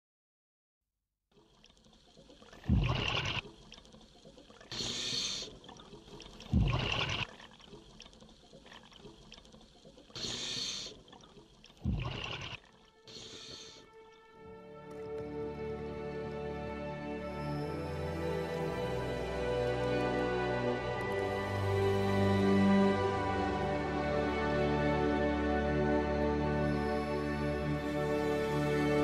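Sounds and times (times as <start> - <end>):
gurgling exhaled bubbles: 1.6 - 12.8
hissing regulator inhalations: 4.6 - 5.8, 10.1 - 11.2, 12.1 - 14.2.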